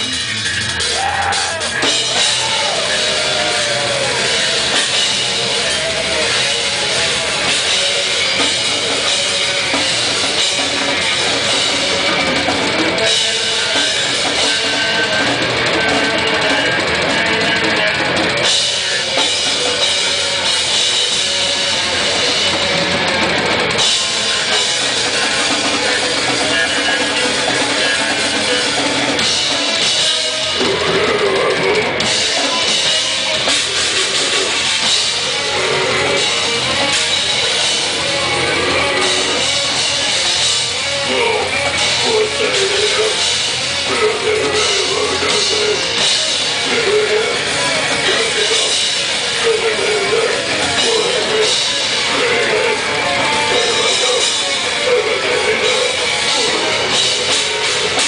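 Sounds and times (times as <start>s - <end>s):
distorted electric guitars: 0.0s - 58.0s
fast drum kit: 0.0s - 58.0s
growled vocals: 25.0s - 58.0s.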